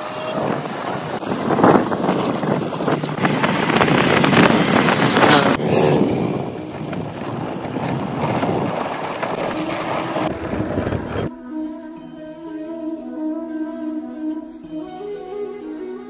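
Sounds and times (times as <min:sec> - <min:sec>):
wind buffeting microphone: 0:00.0 - 0:11.3
motorbike engine running: 0:01.2 - 0:11.3.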